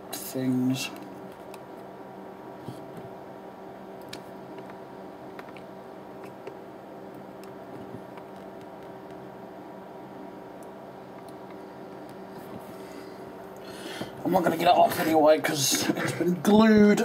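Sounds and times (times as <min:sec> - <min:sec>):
steady low hum: 0:00.0 - 0:17.0
faint clicks and taps: 0:04.0 - 0:09.2.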